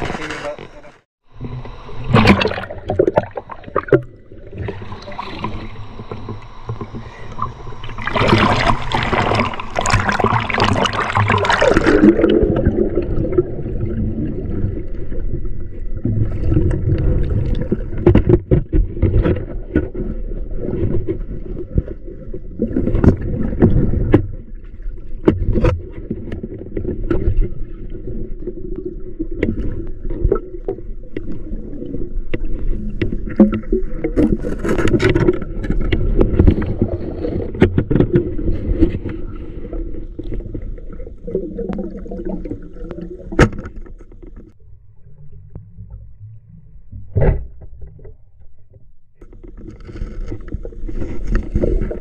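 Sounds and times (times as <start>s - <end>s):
river water splashing and gurgling: 1.3s - 15.4s.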